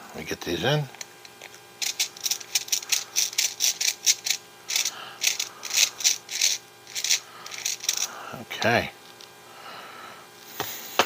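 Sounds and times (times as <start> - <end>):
plastic parts rubbing and clicking: 1.4 - 8.1.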